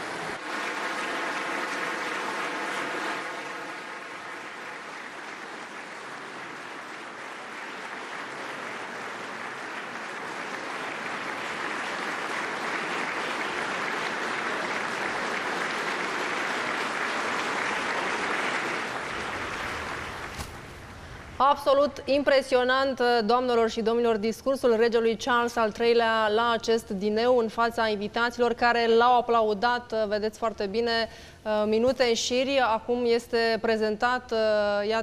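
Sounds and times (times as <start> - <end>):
audience applauding: 0.0 - 21.3.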